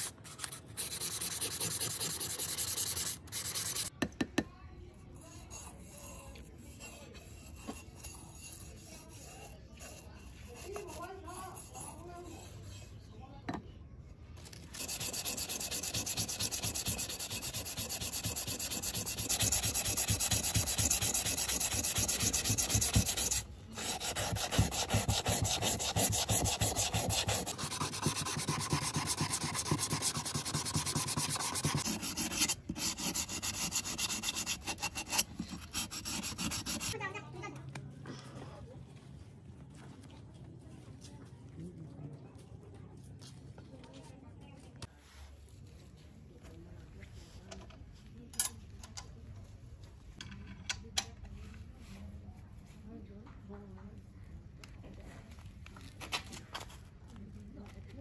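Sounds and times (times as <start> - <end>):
abrasive sanding on metal: 0.0 - 3.9, 5.2 - 12.9, 14.6 - 37.0.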